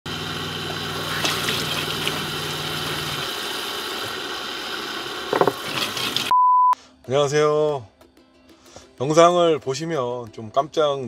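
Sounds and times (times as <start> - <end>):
electric water pump hum: 0.1 - 6.3
tap water running into sink: 0.6 - 6.3
water splashes: 0.7 - 6.3.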